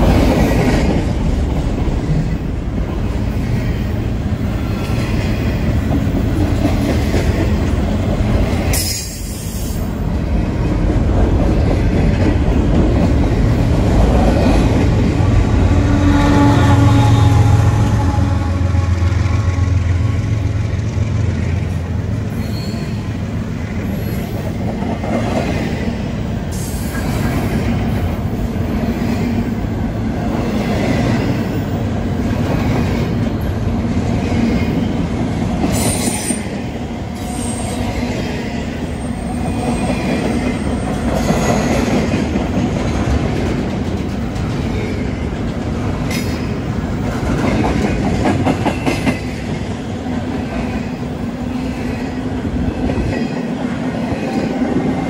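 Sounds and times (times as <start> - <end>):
freight train wheels clacking: 0.0 - 55.0
locomotive drone: 0.0 - 55.0
wheel squeals: 22.3 - 23.1.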